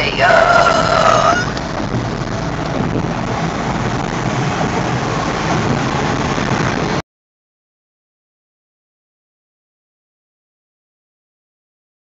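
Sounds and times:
road noise inside moving car: 0.0 - 7.0
truck driving alongside: 0.0 - 7.0.

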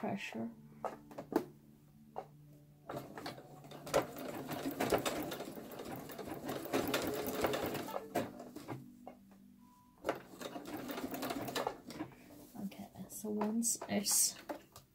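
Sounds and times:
sewing machine stitching: 2.9 - 8.8, 10.0 - 12.2.

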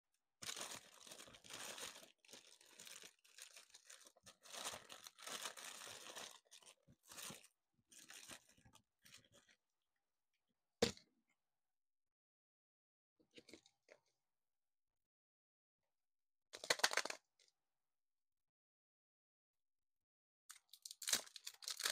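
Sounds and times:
foil and plastic packets crinkling: 0.4 - 8.8, 20.8 - 21.9.

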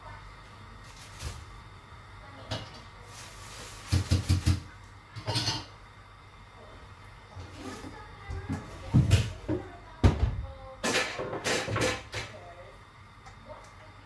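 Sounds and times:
kitchen clatter: 2.4 - 5.8, 8.4 - 12.4
kitchen knocks: 8.5 - 12.3.

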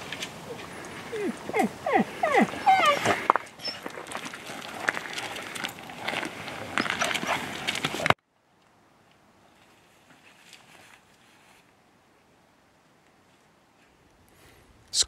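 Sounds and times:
scuffing on gravel path: 2.9 - 8.2.

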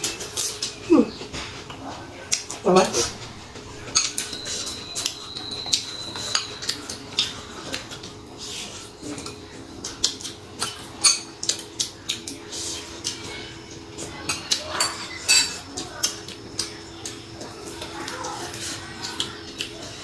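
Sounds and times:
high ringing note: 3.4 - 6.7.

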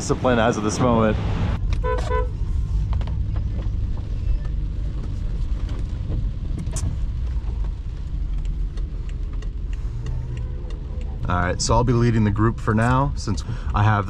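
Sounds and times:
car cabin low rumble: 0.0 - 14.0
faint ticks: 8.3 - 11.2.

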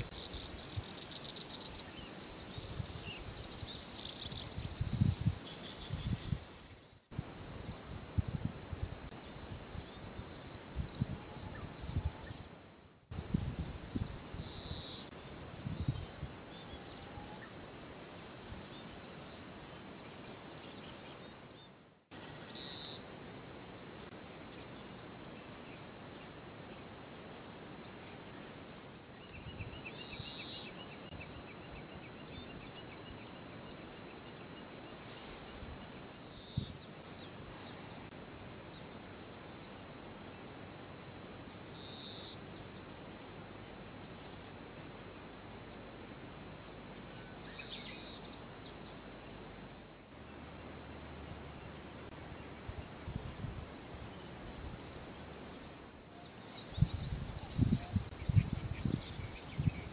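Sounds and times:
background hiss: 0.0 - 59.9
wind buffeting microphone: 2.5 - 6.6, 7.2 - 12.4, 13.1 - 14.6, 15.4 - 16.5, 52.6 - 54.8, 56.7 - 59.9.

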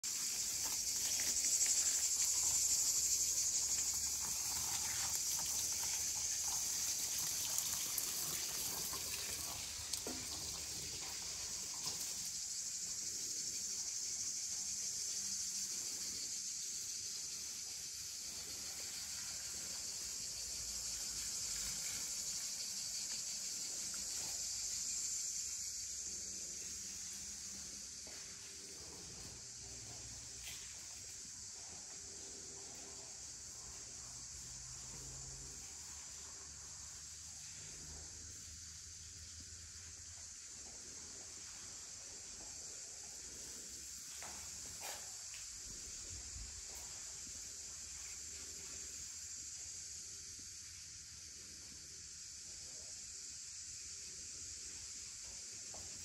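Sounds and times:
cicadas buzzing: 0.0 - 56.0.

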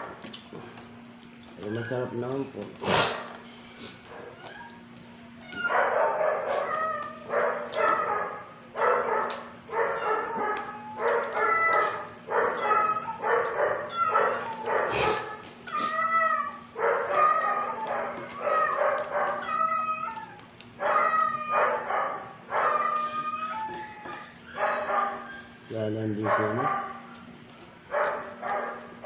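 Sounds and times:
dog barking: 5.7 - 15.4, 16.8 - 19.6, 20.8 - 23.1, 24.6 - 25.3, 26.2 - 27.2, 27.9 - 29.0.

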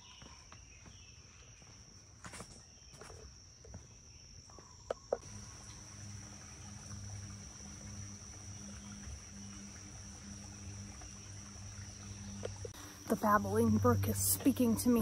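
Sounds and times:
insects trilling: 0.0 - 15.0
low steady hum: 5.2 - 15.0.

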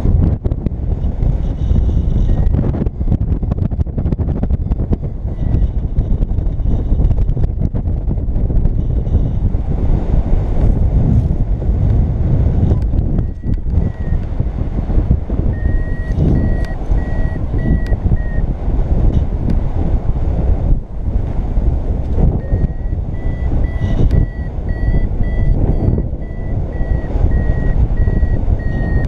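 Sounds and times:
wind buffeting microphone: 0.0 - 29.0
variometer beeping: 4.3 - 6.3, 12.7 - 14.5, 15.1 - 18.5, 22.2 - 29.0.

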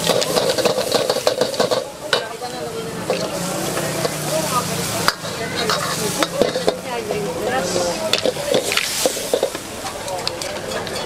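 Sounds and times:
spatula clanking against pan: 0.0 - 2.4, 5.0 - 6.8, 8.1 - 11.0
spatula scraping pan: 0.0 - 6.9, 7.6 - 9.6
rice sizzling in a pan: 0.0 - 10.0.

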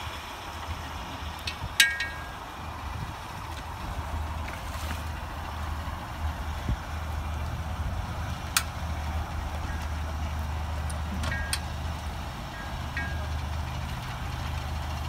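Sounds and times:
car engine idling: 0.0 - 15.0
sharp metallic clinks: 1.5 - 2.4, 10.8 - 11.8, 12.5 - 14.0.

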